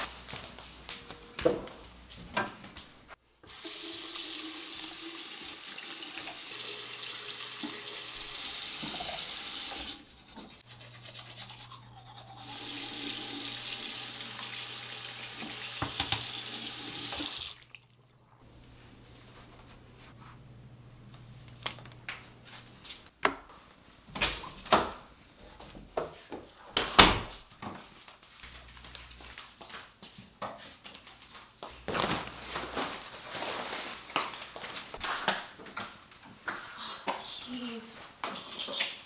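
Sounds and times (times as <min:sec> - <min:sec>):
toothbrush scrubbing teeth: 0:08.8 - 0:13.0
tap running into sink: 0:15.4 - 0:16.4.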